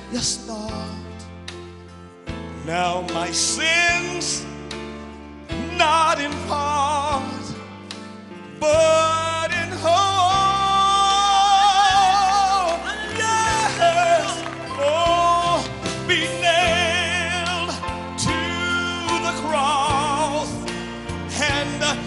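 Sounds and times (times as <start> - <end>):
man singing with vibrato: 0.0 - 1.2, 2.6 - 4.6, 5.5 - 7.8, 8.4 - 22.0
band accompaniment: 0.0 - 22.0.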